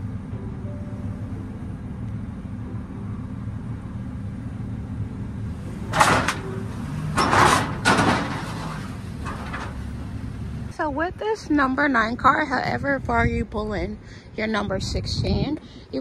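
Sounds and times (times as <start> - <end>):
car driving: 0.0 - 11.1
truck engine idling: 0.0 - 11.4.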